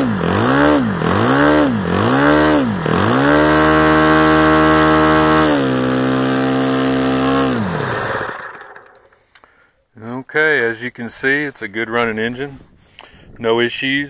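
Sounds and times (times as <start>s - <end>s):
model airplane engine running: 0.0s - 9.1s.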